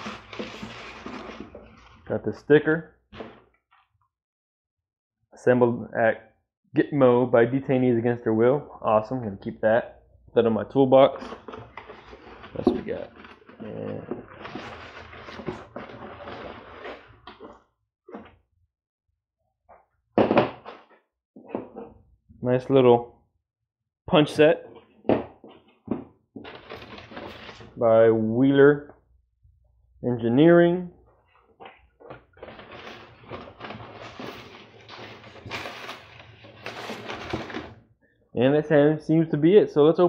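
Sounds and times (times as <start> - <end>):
paper filler and cardboard rustling: 0.0 - 2.2, 11.0 - 18.3, 24.7 - 27.8, 31.3 - 37.8
faint handling sounds: 11.0 - 17.5, 31.0 - 37.8.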